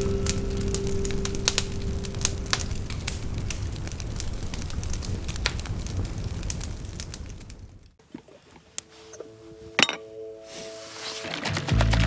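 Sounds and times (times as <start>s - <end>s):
fire burning rush: 0.0s - 8.4s
campfire pops and snaps: 0.3s - 8.9s.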